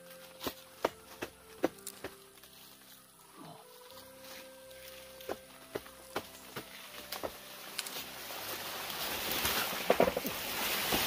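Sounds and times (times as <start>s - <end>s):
rustle of stem and dry leaves: 0.0s - 11.0s
plant crashing down: 9.3s - 11.0s.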